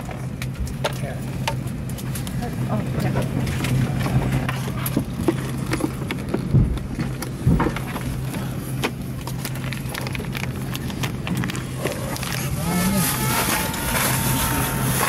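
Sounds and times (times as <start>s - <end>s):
airplane cabin hum: 0.0s - 15.0s
heavy thumps: 6.4s - 8.1s.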